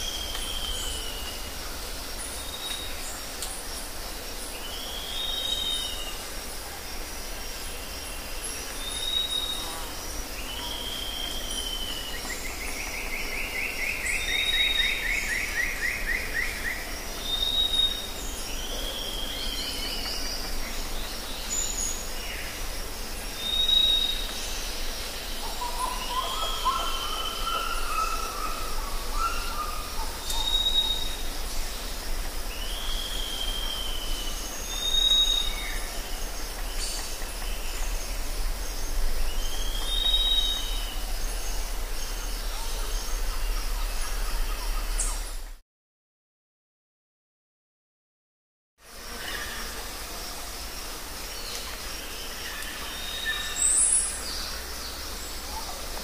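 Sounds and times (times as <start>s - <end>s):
forest ambience hiss: 0.0s - 45.6s, 48.8s - 56.0s.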